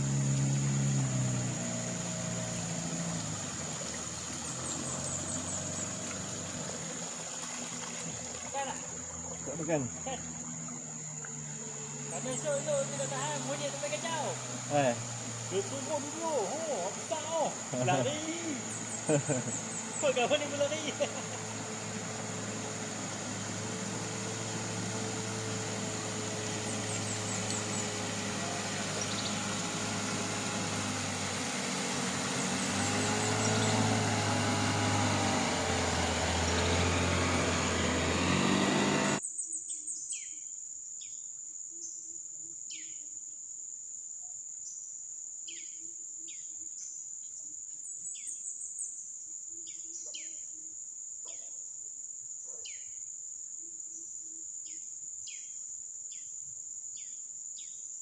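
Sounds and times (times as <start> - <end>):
outboard motor running: 0.0 - 39.2
high insect drone: 0.0 - 57.8.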